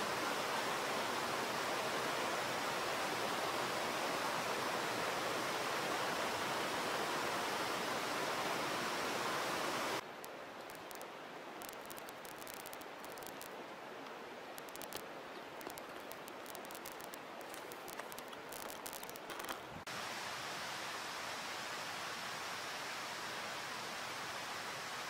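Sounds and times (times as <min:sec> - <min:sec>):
faint ticks: 0:10.1 - 0:19.7.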